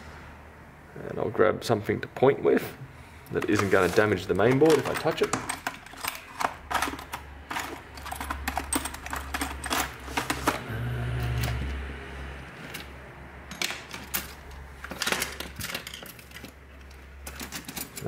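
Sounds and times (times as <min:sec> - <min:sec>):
tools clicking and clattering: 0:03.3 - 0:10.7, 0:12.4 - 0:18.0.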